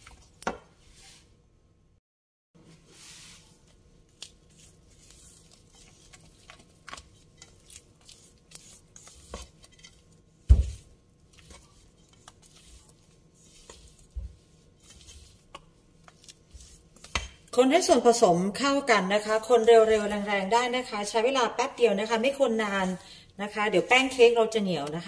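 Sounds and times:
stirring in metal bowl: 0:03.0 - 0:18.2.

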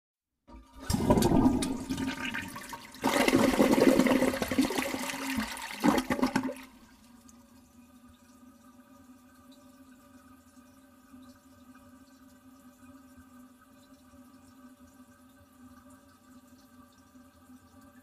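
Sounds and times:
toilet flushing: 0:00.5 - 0:12.9.

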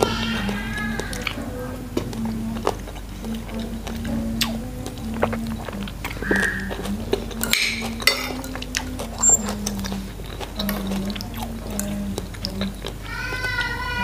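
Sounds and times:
cutlery clinking on plate: 0:07.4 - 0:09.4.

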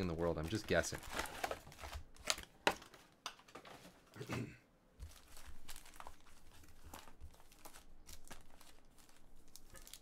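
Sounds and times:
foil wrappers crinkling: 0:05.0 - 0:10.0.

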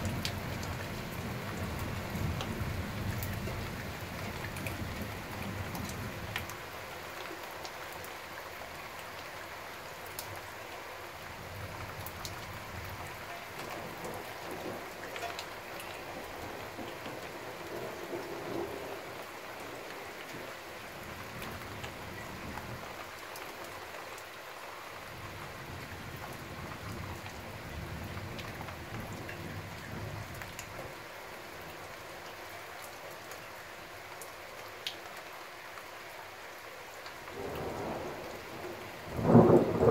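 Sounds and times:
raindrops ticking: 0:00.0 - 0:09.4, 0:11.2 - 0:24.4, 0:25.2 - 0:31.0, 0:34.1 - 0:35.3, 0:37.0 - 0:39.9
heavy rain falling: 0:00.0 - 0:39.9
distant thunder rumbling: 0:12.8 - 0:19.9, 0:37.3 - 0:39.9.

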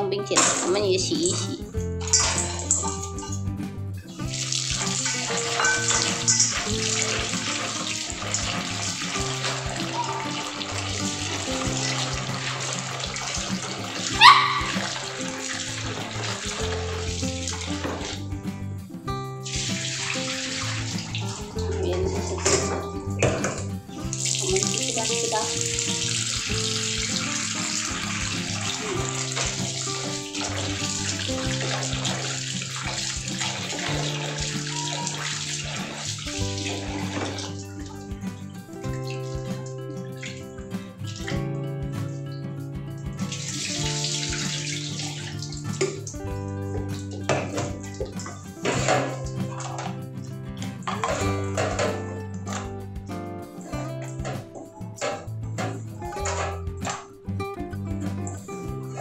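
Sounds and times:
background music: 0:00.0 - 0:59.0
hand stirring berries in water: 0:04.3 - 0:18.2
tap running into steel bowl: 0:04.6 - 0:18.2, 0:19.5 - 0:38.2, 0:43.3 - 0:50.0, 0:50.6 - 0:52.7.

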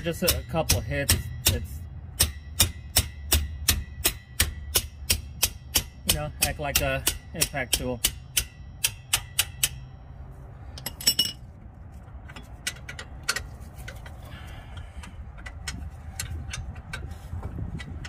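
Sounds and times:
metal hits on a wrench: 0:00.0 - 0:10.0, 0:10.8 - 0:11.4.

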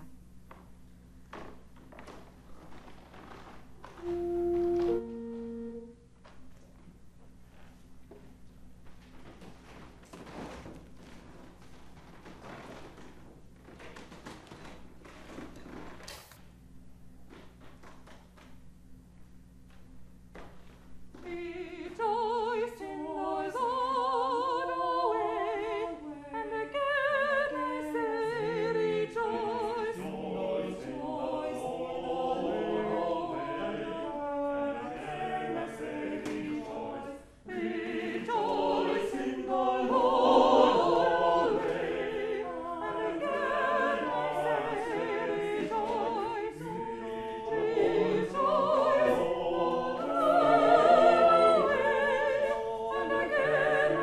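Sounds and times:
choir singing in parts: 0:04.0 - 0:05.9, 0:21.2 - 0:54.0.

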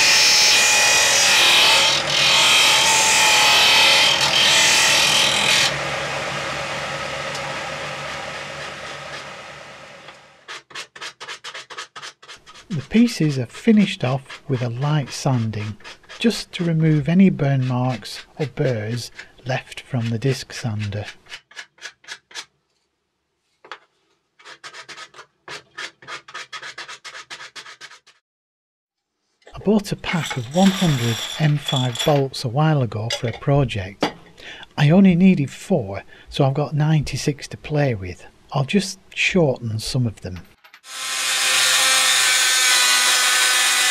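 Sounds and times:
wood grinding on sander disc: 0:07.2 - 0:09.5, 0:30.1 - 0:32.2
hand-sanding rubbing strokes: 0:10.5 - 0:21.5, 0:24.4 - 0:28.2.

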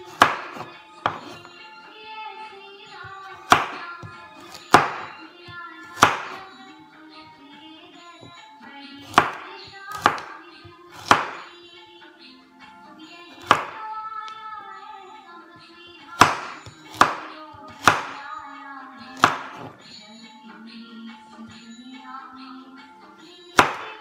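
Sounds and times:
knife chopping on wooden board: 0:00.0 - 0:01.5, 0:03.0 - 0:06.5, 0:09.0 - 0:11.5, 0:13.4 - 0:13.8, 0:16.2 - 0:18.2, 0:19.2 - 0:19.8, 0:23.6 - 0:24.0
background music: 0:00.0 - 0:24.0.

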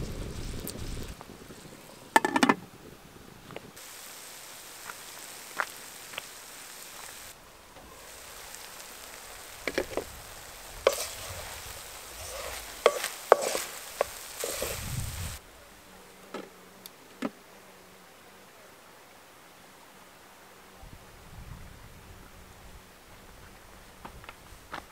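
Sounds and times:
sizzling: 0:00.0 - 0:17.0
spoon knocking against pan: 0:02.2 - 0:02.6
wooden spoon scraping a pan: 0:07.8 - 0:15.4.

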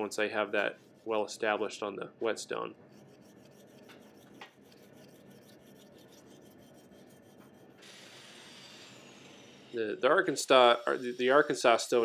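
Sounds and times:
knife scraping on whetstone: 0:02.9 - 0:07.8.

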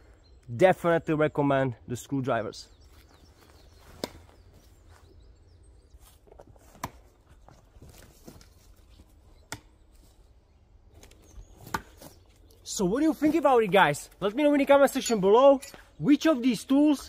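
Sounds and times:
footsteps on dry leaves: 0:02.8 - 0:05.3.

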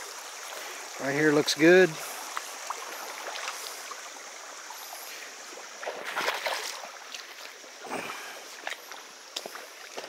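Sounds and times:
creek water running over stones: 0:00.0 - 0:10.0
footsteps splashing through water: 0:05.8 - 0:10.0.

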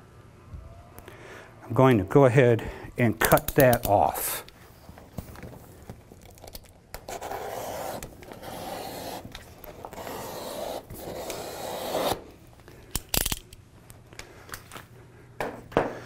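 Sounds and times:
utility knife slicing vinyl: 0:07.0 - 0:12.3.

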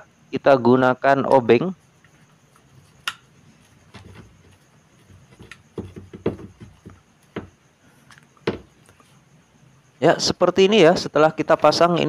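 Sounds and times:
screwdriver clicks and creaks: 0:05.3 - 0:05.6.

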